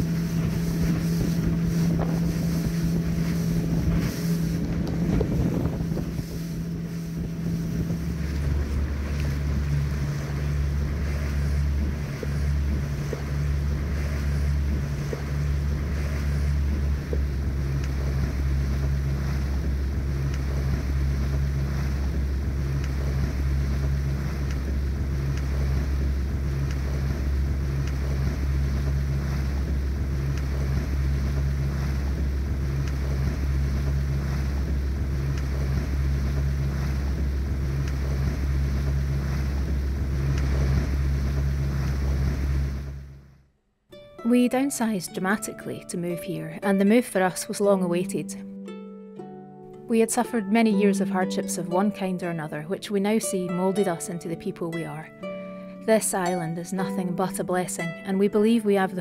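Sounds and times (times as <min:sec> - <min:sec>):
wind buffeting microphone: 0:00.0 - 0:43.1
water rushing along hull: 0:00.0 - 0:43.4, 0:44.2 - 0:48.5, 0:49.8 - 0:59.0
boat engine drone: 0:00.0 - 0:43.6, 0:44.2 - 0:48.6, 0:49.8 - 0:59.0.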